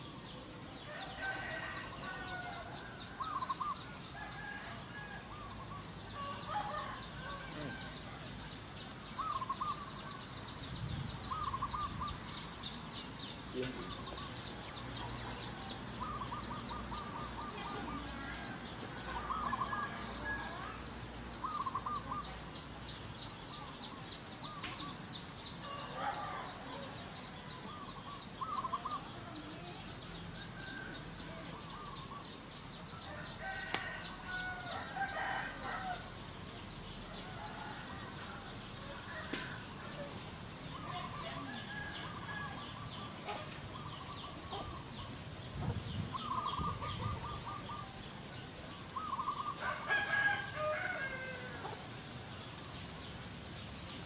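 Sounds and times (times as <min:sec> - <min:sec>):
chickens calling: 0:00.0 - 0:54.0
rooster crowing: 0:00.9 - 0:05.5, 0:06.1 - 0:08.2, 0:25.6 - 0:27.0, 0:33.0 - 0:36.1, 0:40.9 - 0:42.8, 0:49.5 - 0:51.8.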